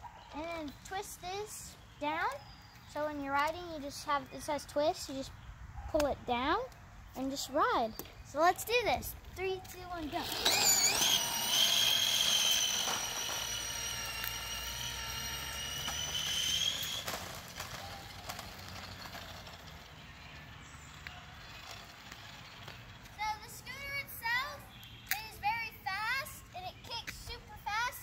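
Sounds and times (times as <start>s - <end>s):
electric scooter motor whining: 9.8s - 23.0s.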